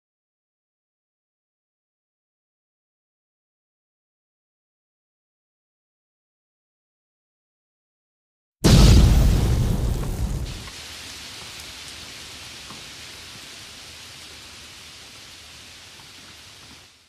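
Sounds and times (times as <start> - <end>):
loud low explosion boom: 8.6 - 10.7
burning flames hissing and crackling: 8.6 - 17.0.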